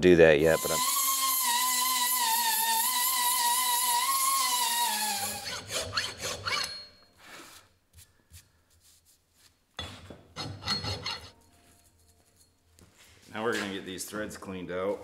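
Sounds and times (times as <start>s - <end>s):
die grinder whine winding down: 0.6s - 5.4s
hand file rasping on metal: 0.6s - 6.9s, 10.4s - 11.3s.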